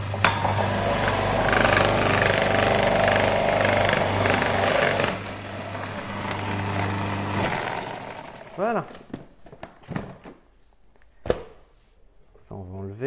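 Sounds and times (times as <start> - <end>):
food processor motor hum: 0.0 - 8.7
grating disc shredding carrots: 0.0 - 8.8.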